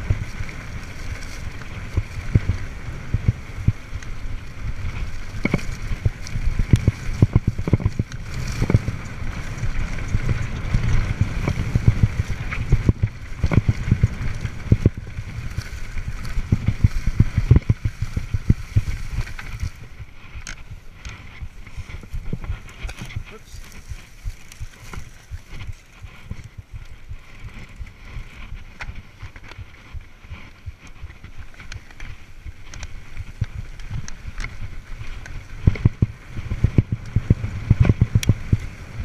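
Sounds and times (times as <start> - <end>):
bike knocking and rattling: 0.0 - 39.0
wind rumble on microphone: 0.0 - 39.0.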